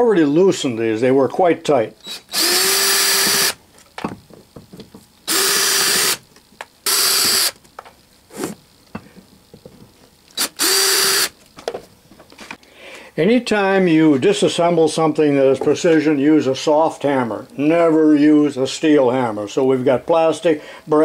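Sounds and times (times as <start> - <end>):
cordless drill whining: 2.0 - 3.6, 5.3 - 6.2, 6.8 - 7.6, 10.4 - 11.4.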